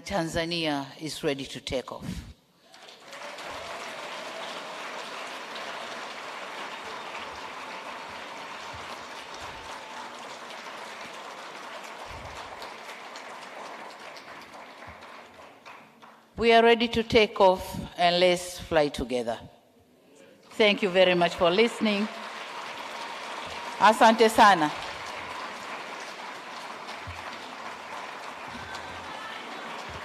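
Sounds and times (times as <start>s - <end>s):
audience applauding: 2.7s - 16.3s, 20.7s - 30.0s.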